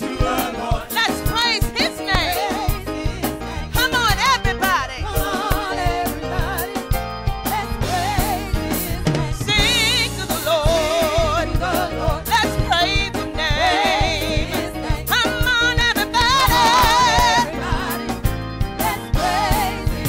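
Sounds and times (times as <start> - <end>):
drums steady beat: 0.0 - 20.0
gospel choir singing: 0.0 - 20.0
woman singing with vibrato: 7.5 - 17.9.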